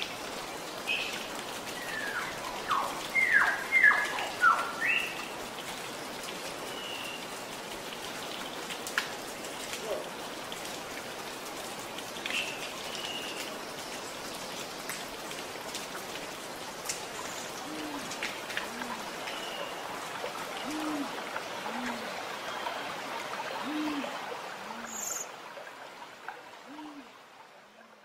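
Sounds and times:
water patter and drips: 0.0s - 28.0s
owl hooting: 20.7s - 21.1s, 23.7s - 24.1s, 26.7s - 27.1s.

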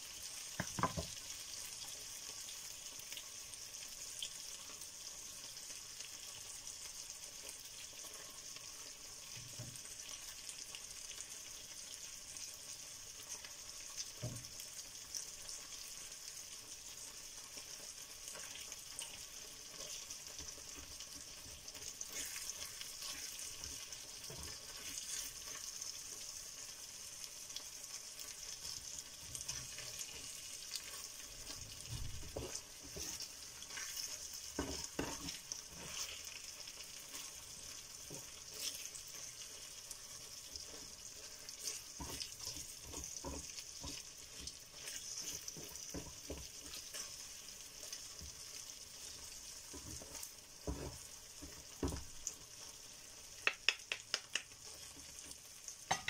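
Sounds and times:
meat sizzling in a frying pan: 0.0s - 56.0s
wooden spatulas scraping a pan: 22.0s - 25.6s, 31.9s - 36.4s, 40.6s - 47.2s.

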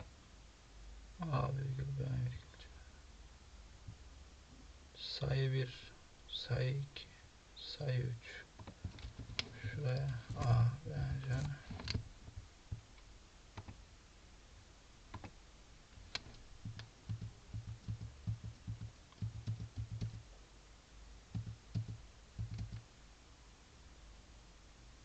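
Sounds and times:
keyboard keys clicking: 15.1s - 15.4s, 16.1s - 20.2s, 21.4s - 22.8s.

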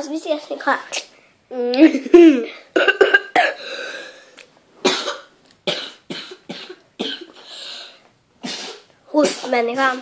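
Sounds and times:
child coughing: 1.8s - 3.8s, 4.8s - 7.4s, 8.4s - 9.6s.

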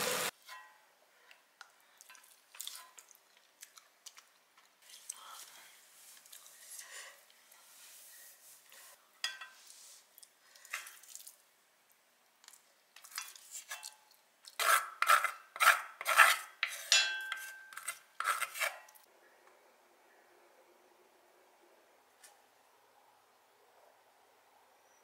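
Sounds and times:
wooden spoon scraping metal pot: 13.0s - 19.1s.

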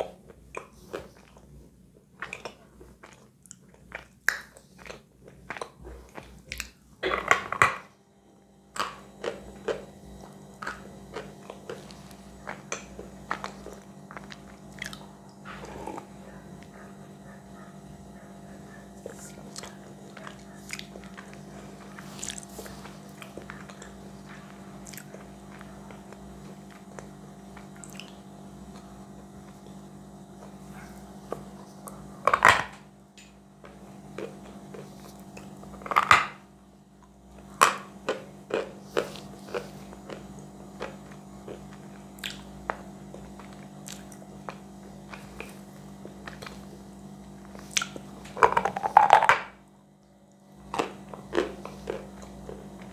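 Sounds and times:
chewing chalk: 0.3s - 6.8s, 8.7s - 29.8s, 37.0s - 46.8s, 50.3s - 52.9s.

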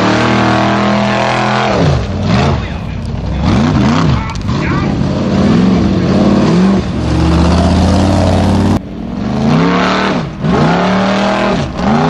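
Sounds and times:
racing engine revving hard: 0.0s - 12.0s.

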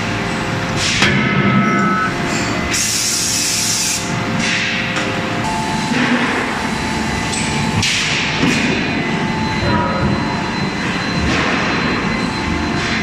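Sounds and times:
machinery din: 4.3s - 13.0s.

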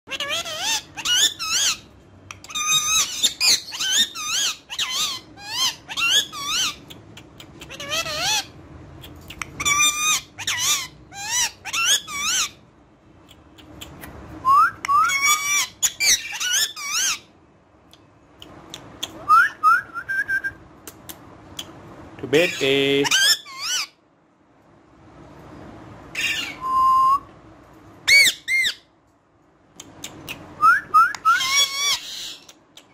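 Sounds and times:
parakeet chattering: 0.1s - 14.3s, 15.1s - 17.3s, 20.9s - 24.0s, 29.8s - 30.6s.

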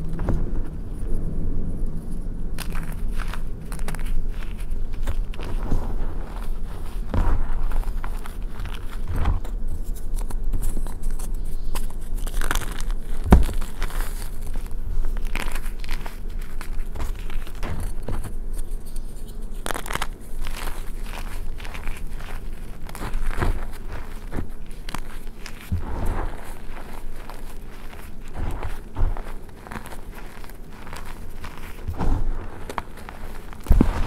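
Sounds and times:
hands crunching chalk: 1.9s - 34.0s
dull thump: 31.8s - 32.8s, 33.6s - 34.0s.

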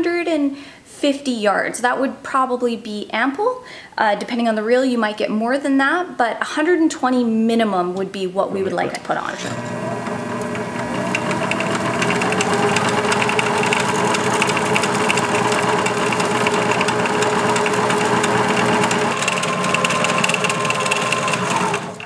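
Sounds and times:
line-spooling machine motor hum: 9.2s - 22.0s.

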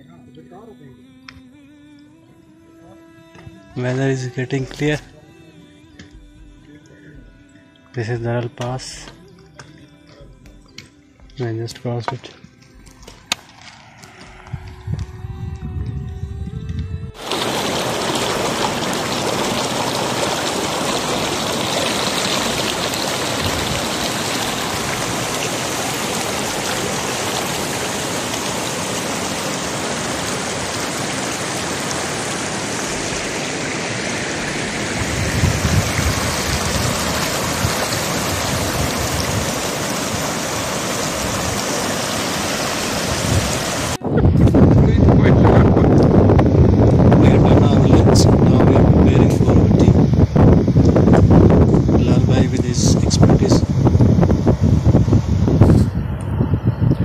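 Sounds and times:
low rumble: 12.8s - 19.2s, 43.3s - 57.0s
stream running over rocks: 17.2s - 44.0s.

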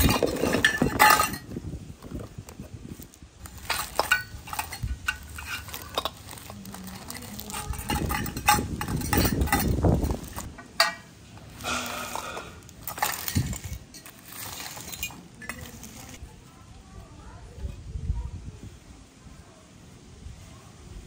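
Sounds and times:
small metal utensils clinking: 0.0s - 1.6s, 3.4s - 16.2s
plastic wrappers rustling: 0.0s - 16.3s.

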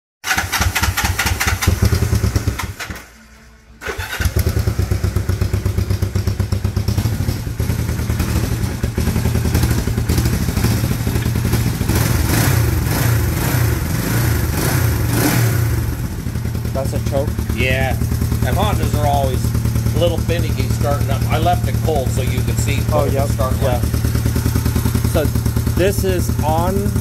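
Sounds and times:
motorcycle engine starting and idling: 0.2s - 27.0s.

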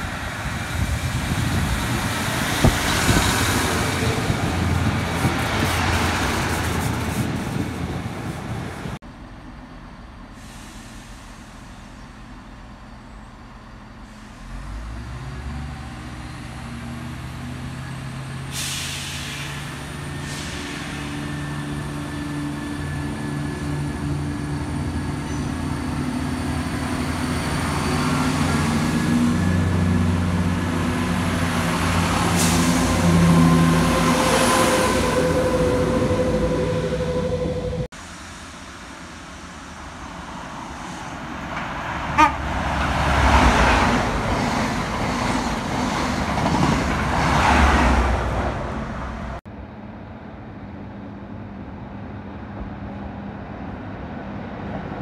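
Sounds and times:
diesel train engine drone: 0.0s - 55.0s.

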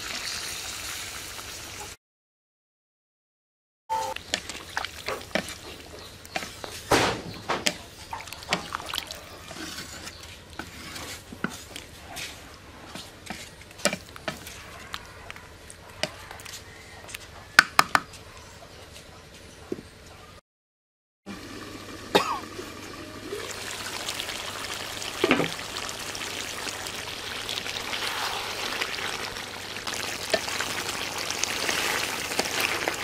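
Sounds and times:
liquid sloshing: 4.2s - 6.1s, 8.1s - 9.4s
spatula scraping metal pot: 8.5s - 12.4s.

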